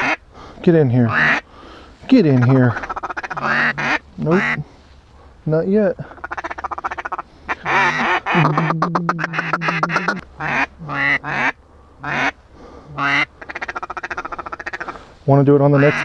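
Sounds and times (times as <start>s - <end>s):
duck call fast chatter: 0.0s - 0.2s, 1.1s - 1.4s, 2.3s - 4.6s, 6.2s - 12.4s, 13.0s - 15.0s, 15.8s - 16.0s
duck call quacks: 0.0s - 0.2s, 1.1s - 1.4s, 2.4s - 4.6s, 6.2s - 15.1s, 15.8s - 16.0s.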